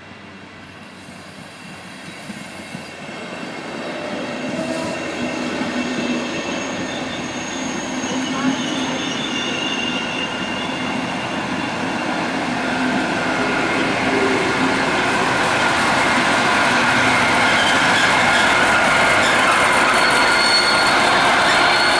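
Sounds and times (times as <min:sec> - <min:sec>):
diesel locomotive: 0:00.0 - 0:21.9
train wheels rumbling on rails: 0:00.0 - 0:21.9
thin steady wheel squeal: 0:00.9 - 0:12.2, 0:17.4 - 0:21.9.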